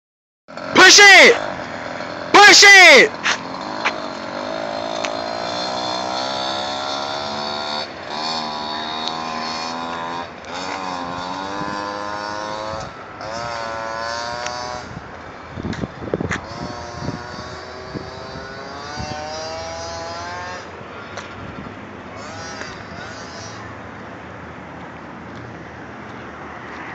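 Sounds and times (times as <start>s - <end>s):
small two-stroke engine revving: 0.5s - 15.0s, 16.2s - 21.1s, 22.1s - 23.8s.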